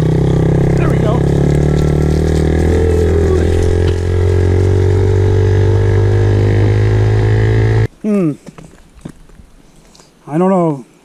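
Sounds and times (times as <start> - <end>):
small off-road engine running: 0.0 - 7.9.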